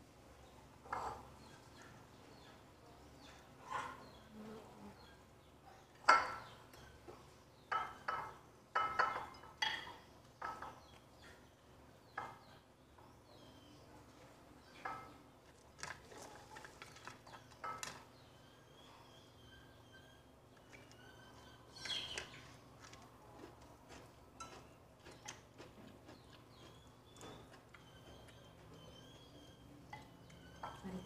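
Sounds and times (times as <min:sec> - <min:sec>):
utensils clinking on ceramic plates: 0:07.7 - 0:10.9, 0:29.9 - 0:31.0.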